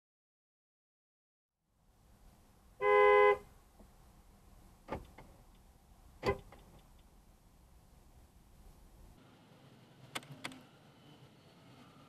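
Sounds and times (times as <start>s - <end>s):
car horn: 2.8s - 3.5s.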